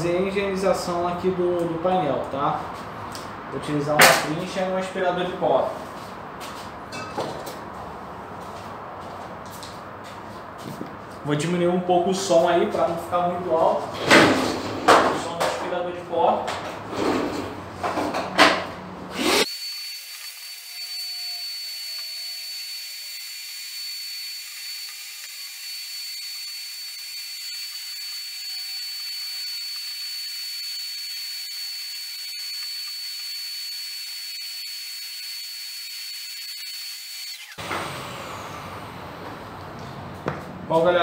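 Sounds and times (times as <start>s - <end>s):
vacuum cleaner motor whining: 19.2s - 40.0s.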